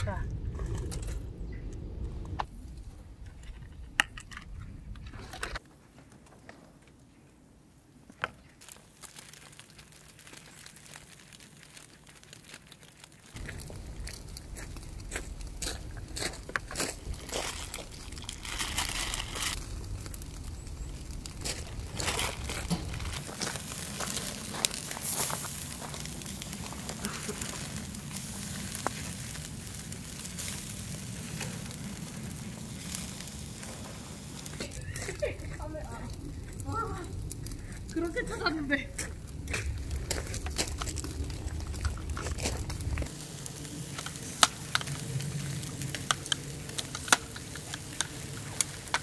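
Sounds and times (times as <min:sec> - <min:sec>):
low rumble: 0:00.0 - 0:05.6, 0:13.4 - 0:24.5, 0:25.9 - 0:44.0
sharp pops and crackles: 0:00.0 - 0:07.0, 0:08.0 - 0:49.0
steaks sizzling on a grill: 0:13.5 - 0:37.4, 0:42.2 - 0:49.0.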